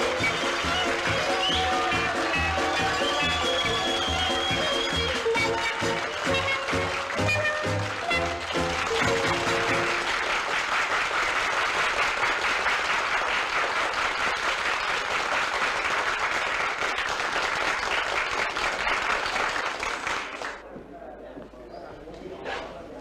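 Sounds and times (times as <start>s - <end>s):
held music notes: 0.0s - 10.1s
audience applauding: 0.0s - 20.6s.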